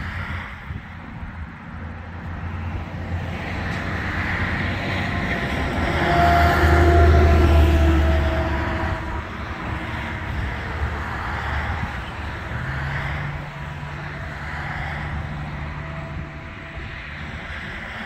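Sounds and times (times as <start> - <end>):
vehicle passing by: 0.0 - 18.0.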